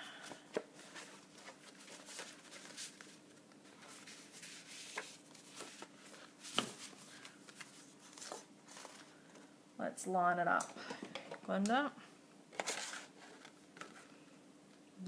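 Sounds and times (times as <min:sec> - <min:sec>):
paper sheets rustling: 0:00.2 - 0:09.3.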